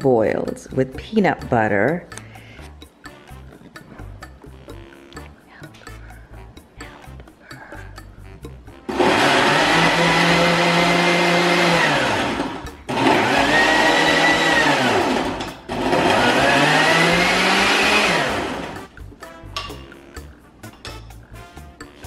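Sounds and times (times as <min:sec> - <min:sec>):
blender motor running: 0:08.9 - 0:18.8.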